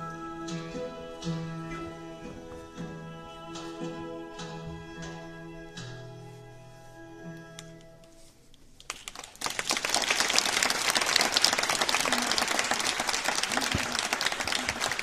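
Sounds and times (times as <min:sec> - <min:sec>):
audience applauding: 0:08.8 - 0:15.0.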